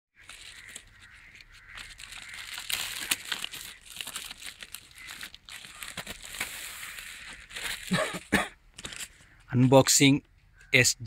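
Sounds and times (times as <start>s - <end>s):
plastic mailer crinkling: 0.2s - 8.0s, 8.8s - 9.3s.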